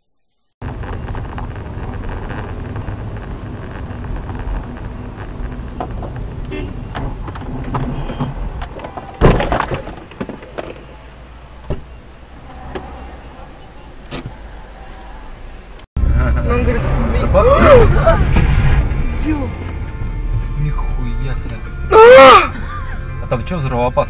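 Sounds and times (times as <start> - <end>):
road and engine noise in car: 0.6 - 24.0
loud collision bang: 6.5 - 12.0, 16.0 - 21.2.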